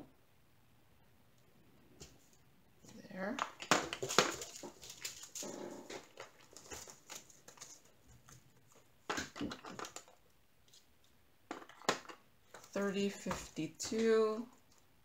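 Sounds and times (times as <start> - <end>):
plastic bags crinkling: 3.6 - 8.0.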